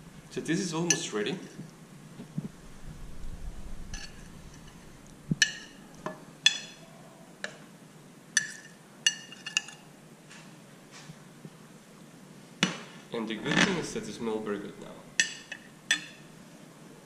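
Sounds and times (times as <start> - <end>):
metal spoon clinking on plate: 0.9 - 1.1, 5.4 - 5.8, 8.4 - 9.8, 15.2 - 16.3.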